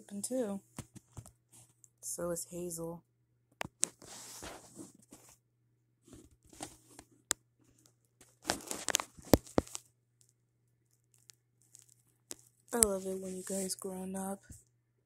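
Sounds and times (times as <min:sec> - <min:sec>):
phone rustling against bedding: 0:03.7 - 0:05.4, 0:06.0 - 0:09.8, 0:11.6 - 0:14.6.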